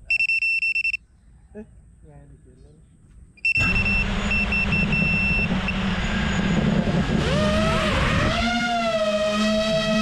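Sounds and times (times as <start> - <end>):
drone motors buzzing: 3.6 - 10.0.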